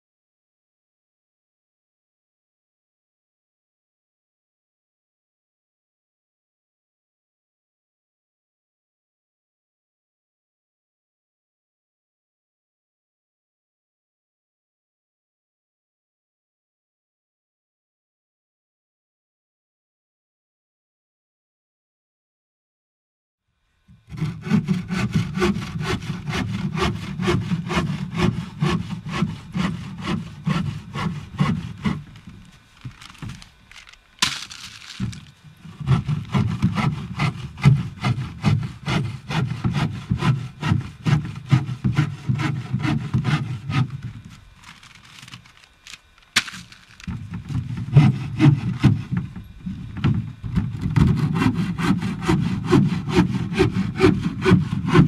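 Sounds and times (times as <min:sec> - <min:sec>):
bow saw cutting wood: 0:23.9 - 0:55.0.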